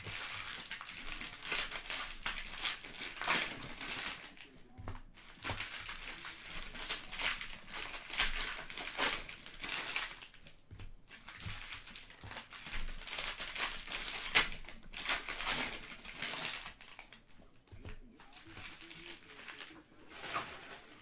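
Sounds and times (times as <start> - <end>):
packs torn open: 0.0 - 4.6, 5.2 - 10.5, 11.1 - 17.2
cellophane wrappers crinkling: 0.0 - 21.0.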